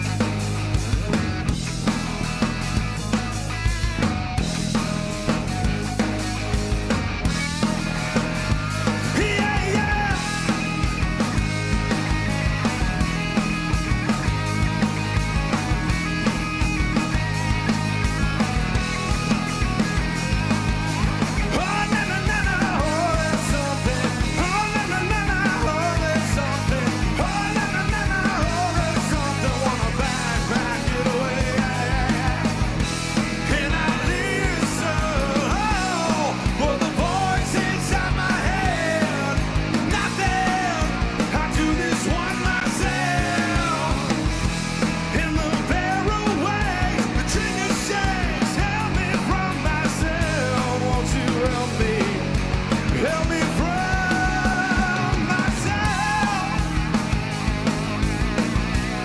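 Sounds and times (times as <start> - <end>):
rock band playing live: 0.0 - 59.0
man singing: 8.9 - 10.9, 21.4 - 57.0.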